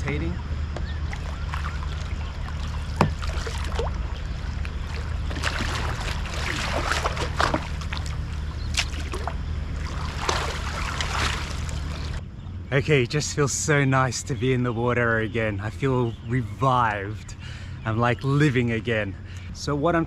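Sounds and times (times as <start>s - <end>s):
water sloshing around kayak: 0.0s - 12.2s
steady low rumble: 0.0s - 20.0s
sharp water splashes: 1.0s - 12.2s.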